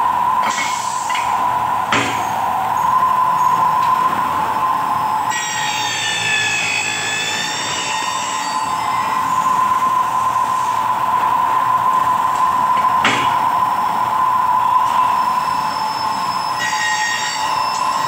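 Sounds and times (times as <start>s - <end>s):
milling machine whining: 0.0s - 18.0s
cutter squealing on metal: 5.3s - 9.6s, 15.4s - 18.0s.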